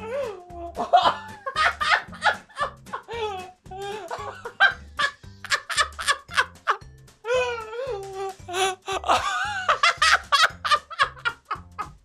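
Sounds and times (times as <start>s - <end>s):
background music with low beat: 0.0s - 12.0s
men laughing hard: 0.8s - 3.3s, 3.9s - 6.8s, 8.5s - 12.0s.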